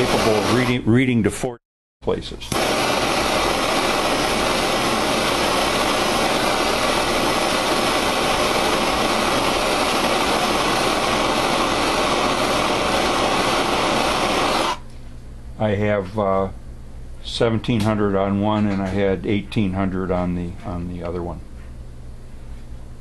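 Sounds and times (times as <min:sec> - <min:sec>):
gas torch hissing: 0:00.0 - 0:00.8, 0:02.5 - 0:14.8.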